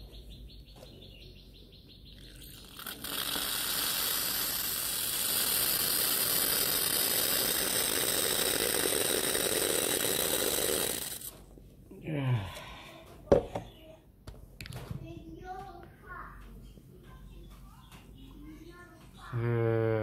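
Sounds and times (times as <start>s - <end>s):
coffee press hissing: 2.2s - 11.4s.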